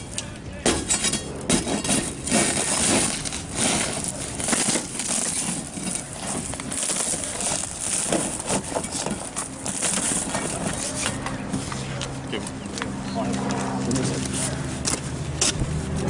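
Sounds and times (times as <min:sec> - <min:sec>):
pry bar scraping cracked glass: 0:00.6 - 0:11.2.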